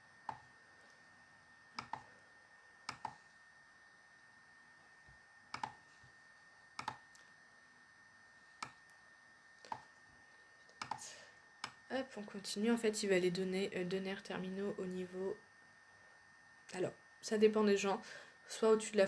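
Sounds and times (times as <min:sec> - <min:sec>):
faint high-pitched hum: 0:00.0 - 0:19.0
computer mouse clicking: 0:01.8 - 0:02.0, 0:02.8 - 0:03.2, 0:05.5 - 0:05.8, 0:06.8 - 0:07.3, 0:10.7 - 0:11.0, 0:11.6 - 0:11.8.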